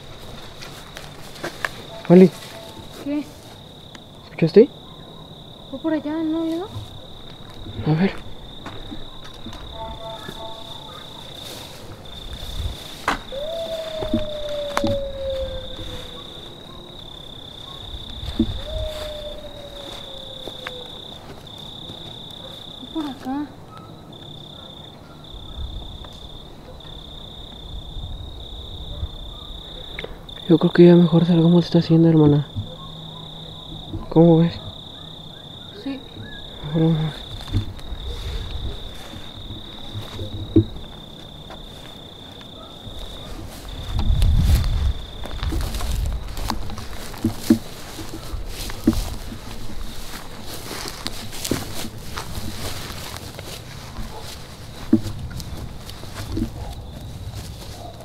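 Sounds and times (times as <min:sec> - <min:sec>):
crickets trilling: 0:00.0 - 0:58.0
low rumbling thumps: 0:37.2 - 0:41.0.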